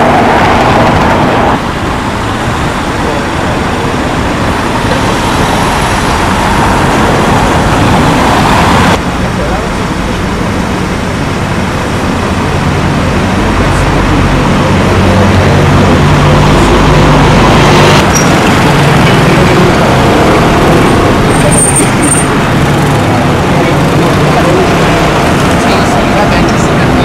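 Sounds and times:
vehicle engines humming: 0.0 - 27.0
short high squeaks: 18.1 - 18.4.

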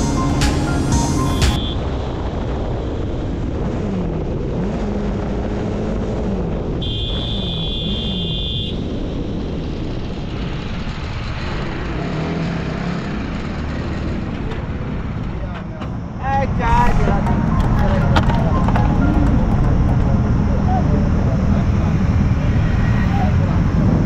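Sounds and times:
high steady tone: 0.0 - 1.9, 16.8 - 22.2
heavy wind noise: 0.0 - 7.7
motorcycle engine running: 16.9 - 23.6.

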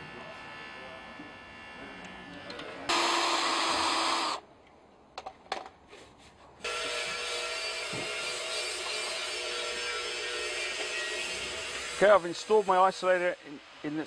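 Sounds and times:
machine noise with held tones: 0.0 - 4.4, 6.6 - 14.0
handheld power tool running: 2.3 - 4.4, 6.6 - 12.9.

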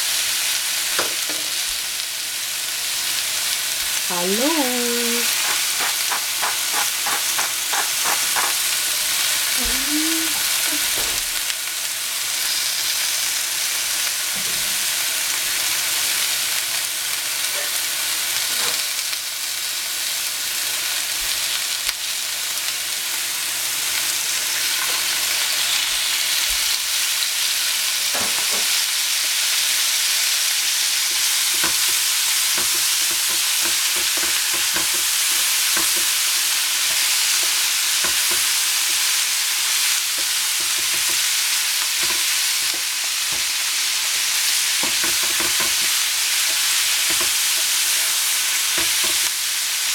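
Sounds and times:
greens sizzling in a pan: 0.0 - 49.9
pepper mill grinding: 4.4 - 8.9
spatula scraping a pan: 5.3 - 8.6.

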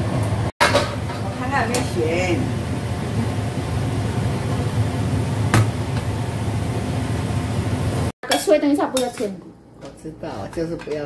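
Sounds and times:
cabbage sizzling in a wok: 0.8 - 8.4.

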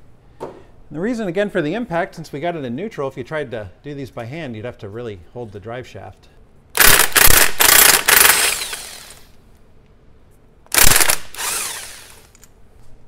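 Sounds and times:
impact wrench loosening bolts: 6.8 - 9.3, 10.7 - 12.5.

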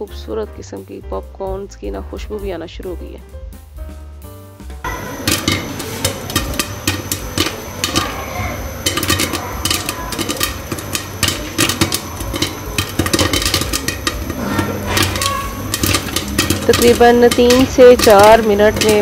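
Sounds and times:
popcorn popping in a pan: 4.8 - 19.0.

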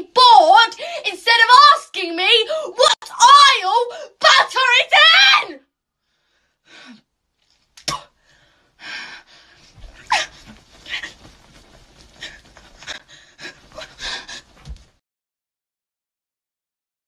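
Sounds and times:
woman panting and huffing: 8.2 - 15.0.

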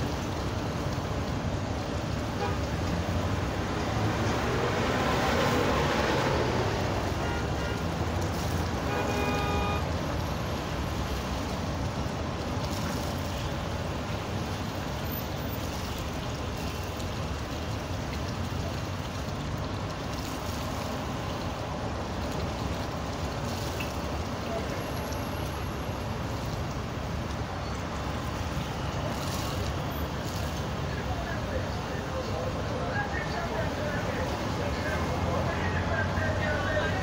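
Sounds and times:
vehicles passing with rumble: 0.0 - 37.0
car horn: 2.4 - 2.7, 7.1 - 7.9, 8.8 - 9.9.

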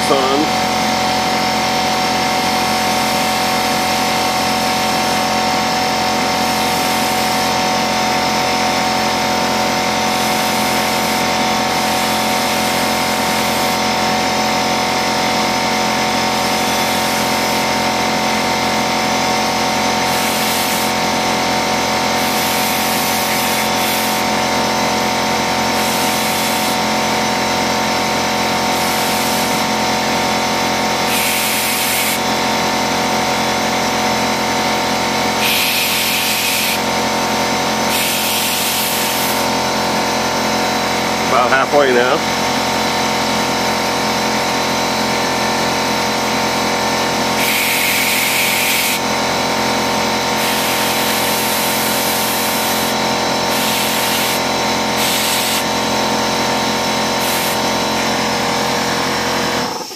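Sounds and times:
air compressor running: 0.0 - 59.9
compressed air hissing from nozzle: 10.2 - 13.8, 20.0 - 21.0, 22.1 - 24.4, 25.7 - 26.8, 28.7 - 29.6, 31.0 - 32.2, 35.4 - 36.9, 37.8 - 39.5, 47.4 - 49.0, 50.3 - 55.8, 57.2 - 58.2.

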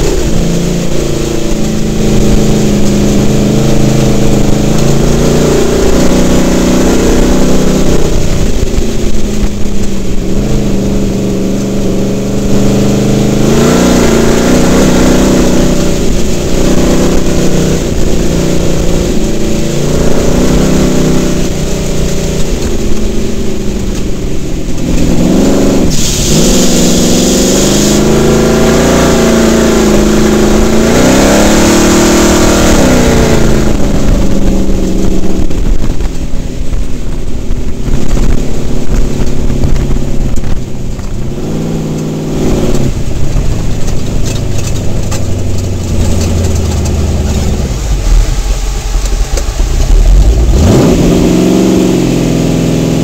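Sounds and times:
truck engine revving: 0.0 - 53.0
hiss: 25.9 - 28.1.

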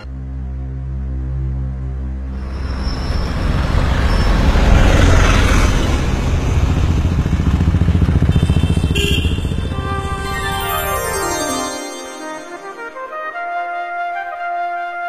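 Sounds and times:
vehicle engine passing: 2.4 - 11.2.

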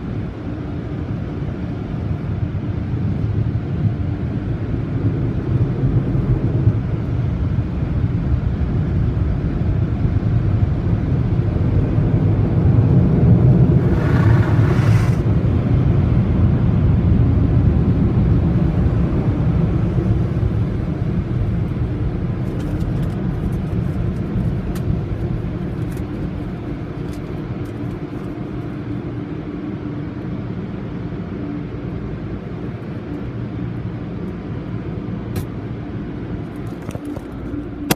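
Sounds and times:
car wash machinery rumble: 11.6 - 22.6.

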